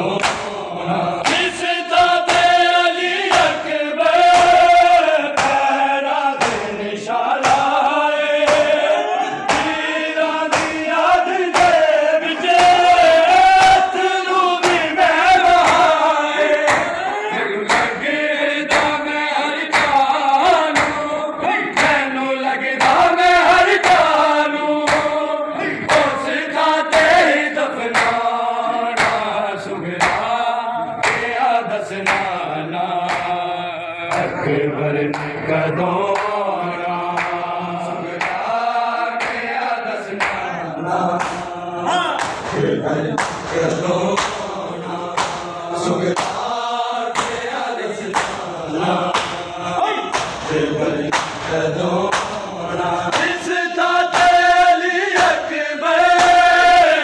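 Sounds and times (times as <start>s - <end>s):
men chanting a lament: 0.0s - 57.0s
hands slapping chests: 0.1s - 0.6s, 1.2s - 1.6s, 2.2s - 2.7s, 3.3s - 5.8s, 6.4s - 6.8s, 7.4s - 8.8s, 9.5s - 9.9s, 10.5s - 11.9s, 12.5s - 14.0s, 14.6s - 17.0s, 17.7s - 18.0s, 18.7s - 19.0s, 19.7s - 20.1s, 20.7s - 21.1s, 21.7s - 22.0s, 22.8s - 23.1s, 23.8s - 24.2s, 24.8s - 25.2s, 25.8s - 26.2s, 26.9s - 27.3s, 27.9s - 28.3s, 29.0s - 29.3s, 30.0s - 30.4s, 31.0s - 31.4s, 32.0s - 32.3s, 33.0s - 33.4s, 35.1s - 35.5s, 36.1s - 36.4s, 37.2s - 37.5s, 38.1s - 38.5s, 39.2s - 39.4s, 40.2s - 40.4s, 41.2s - 46.5s, 47.1s - 49.4s, 50.1s - 52.5s, 53.1s - 53.5s, 54.1s - 55.4s, 56.1s - 56.6s.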